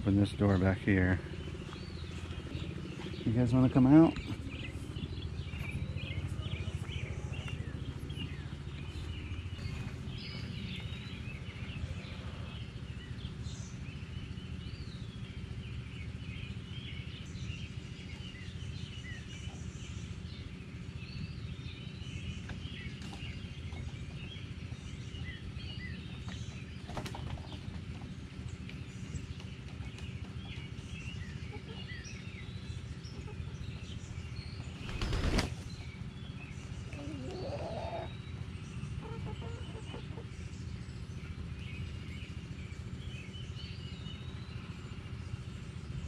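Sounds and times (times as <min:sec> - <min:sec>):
low outdoor rumble: 0:00.0 - 0:46.0
songbirds chirping: 0:00.0 - 0:46.0
chicken wings flapping: 0:26.8 - 0:27.6, 0:34.8 - 0:35.7.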